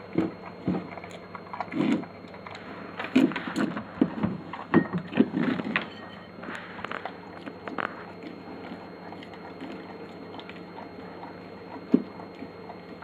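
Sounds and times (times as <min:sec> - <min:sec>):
dog licking and chewing: 0:00.1 - 0:05.8, 0:06.5 - 0:13.0.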